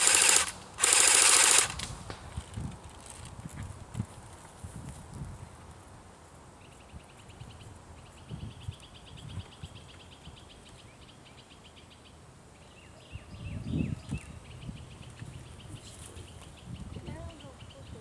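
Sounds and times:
birds singing trills: 6.6s - 18.0s.

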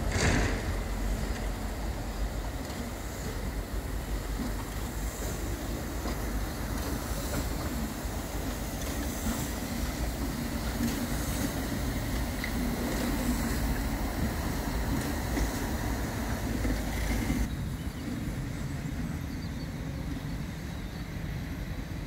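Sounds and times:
train wheels rumbling on rails: 0.0s - 22.0s.

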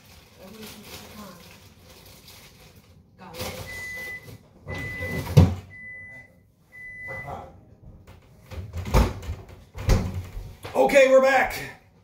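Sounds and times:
oven timer beeping: 3.7s - 7.4s.

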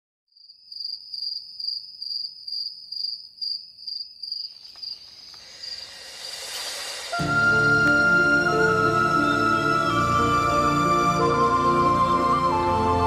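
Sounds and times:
cricket chirping: 0.3s - 7.2s
swell of noise: 5.4s - 10.6s.

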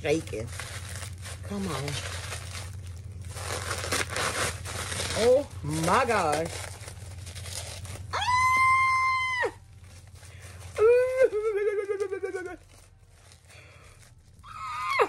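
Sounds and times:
woman squealing: 8.1s - 9.6s, 10.7s - 12.6s, 14.4s - 15.0s.

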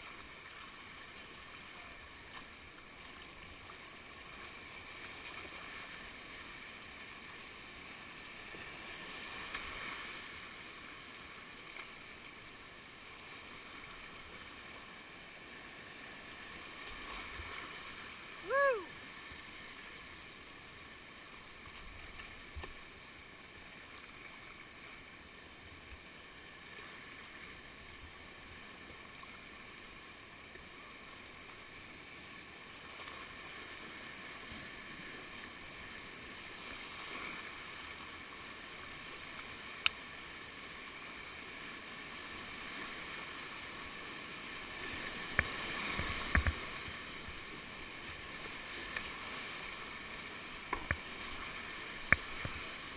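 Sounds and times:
whitewater rushing: 17.1s - 19.0s
paddle splashes: 41.2s - 52.9s.

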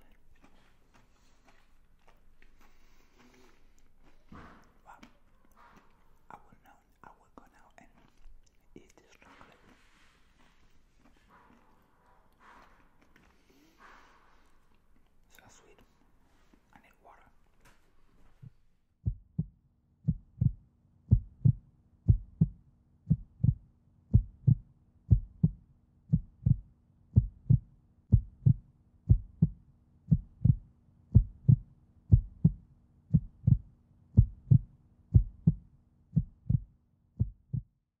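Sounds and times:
faint low hum: 0.0s - 19.5s
heartbeat thumps: 18.4s - 37.8s.

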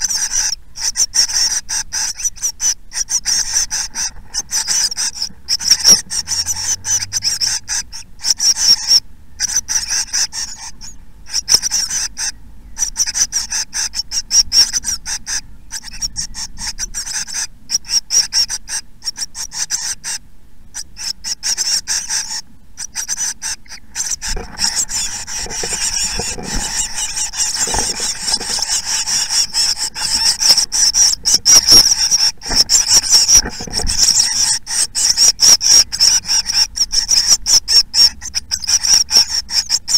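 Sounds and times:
chicks begging chittering: 0.0s - 39.9s.

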